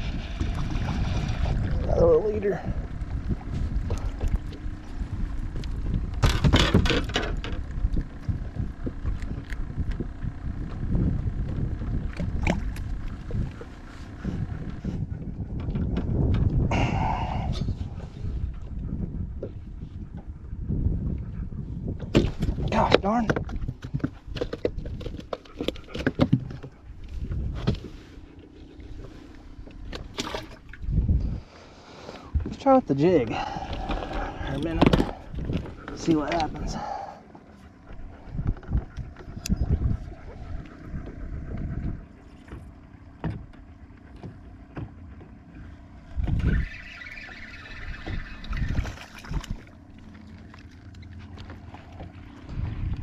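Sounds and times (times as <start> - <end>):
steady low hum: 0.0 - 53.0
wind rumbling on microphone: 0.0 - 53.0
knocks and rattling on boat deck: 0.3 - 28.1, 32.3 - 46.6.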